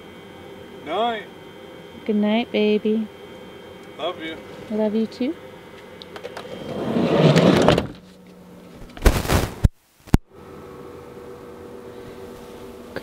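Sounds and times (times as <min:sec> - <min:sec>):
steady hum inside van: 0:00.0 - 0:13.0
van door sliding and shutting: 0:06.2 - 0:08.1.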